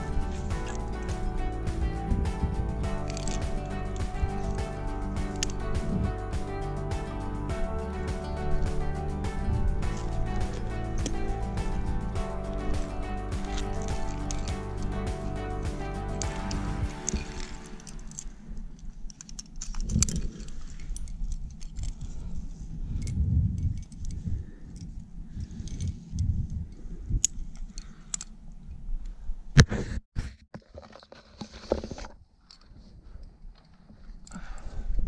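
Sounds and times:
low rumble: 0:00.0 - 0:18.8
climbing gear jangling and clinking: 0:02.8 - 0:05.8, 0:07.6 - 0:26.1.

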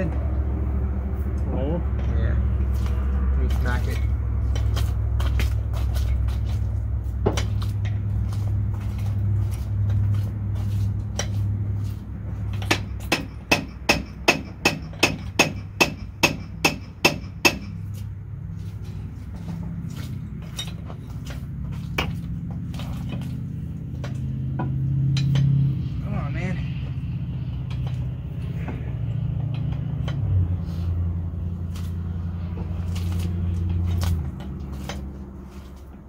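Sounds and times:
steady low hum: 0:00.0 - 0:36.0
hammer striking metal: 0:12.5 - 0:17.9.

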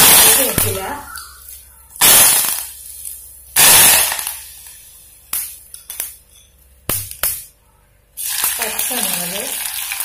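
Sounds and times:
leaves spluttering in hot oil: 0:00.0 - 0:06.2, 0:08.2 - 0:10.0
sharp pops: 0:00.0 - 0:06.2, 0:06.9 - 0:07.6.

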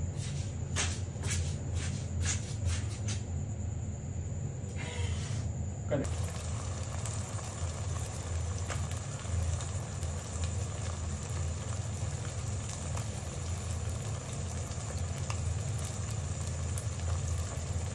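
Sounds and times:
low steady hum: 0:02.7 - 0:17.9
eggs sizzling in oil: 0:06.0 - 0:17.9.

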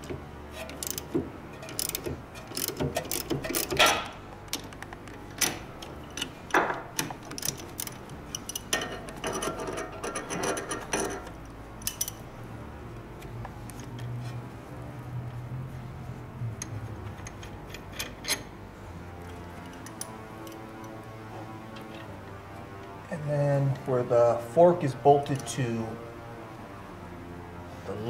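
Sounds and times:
socket ratchet clicking: 0:00.6 - 0:06.3, 0:07.0 - 0:12.2.

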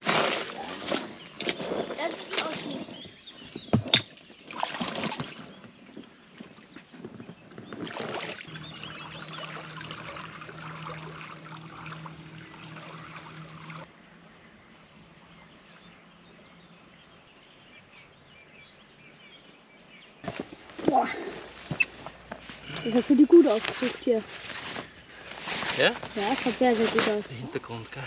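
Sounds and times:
water splashing: 0:00.0 - 0:03.0, 0:03.8 - 0:06.8, 0:07.7 - 0:13.9
rushing water: 0:07.8 - 0:13.9
boat motor humming: 0:08.3 - 0:14.0.

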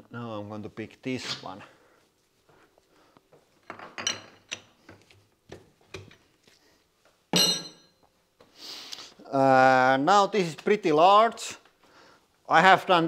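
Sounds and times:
loud metal clank ringing: 0:07.4 - 0:07.9
metal tool holders clinking: 0:07.4 - 0:07.9.

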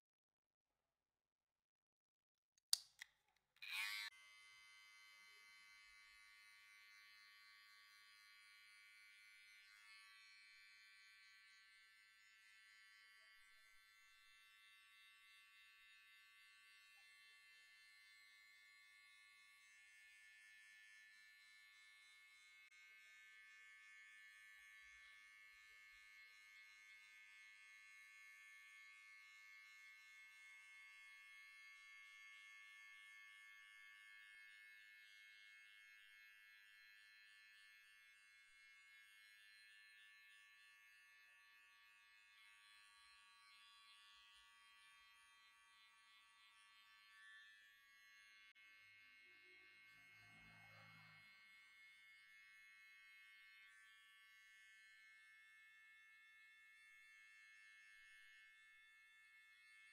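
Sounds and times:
electric hair clipper buzzing: 0:03.6 - 0:40.4.

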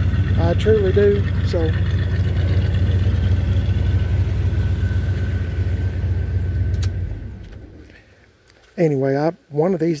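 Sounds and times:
truck engine idling: 0:00.0 - 0:08.1
faint engine whine: 0:00.0 - 0:09.6.

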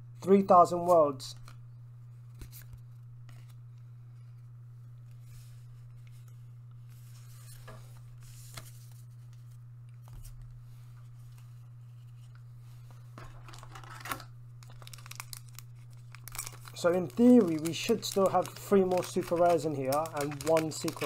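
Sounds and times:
steady low hum: 0:00.0 - 0:21.0
foil pack crinkling and tearing: 0:13.2 - 0:21.0.

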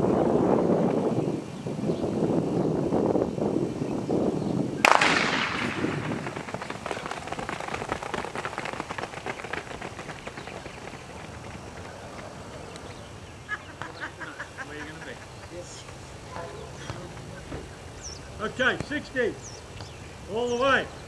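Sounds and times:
starting pistol bang: 0:04.8 - 0:06.4
runners' footsteps on track: 0:05.5 - 0:14.3.

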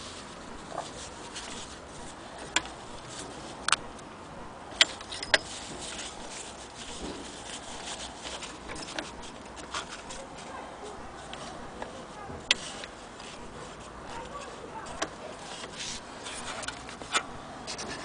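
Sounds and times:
cloth rubbing on brass: 0:05.0 - 0:17.0.

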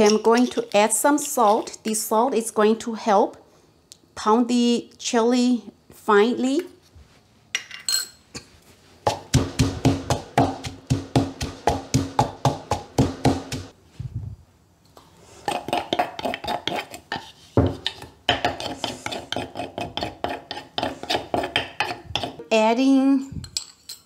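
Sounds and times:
metal spoon scraping mortar: 0:00.0 - 0:02.0, 0:15.4 - 0:22.6
wooden pestle pounding in mortar: 0:09.1 - 0:13.7, 0:17.6 - 0:22.5.

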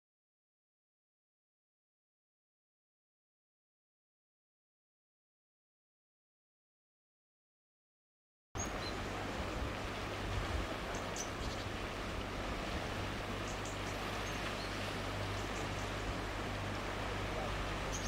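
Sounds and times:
low rumble and hiss: 0:08.6 - 0:18.0.

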